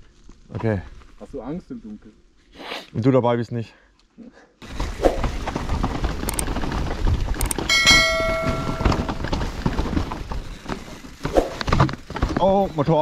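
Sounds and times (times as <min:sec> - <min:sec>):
bike tyres rumbling and rattling: 0:04.6 - 0:13.0
high ringing squeal: 0:07.7 - 0:09.3
knocks: 0:07.7 - 0:09.3.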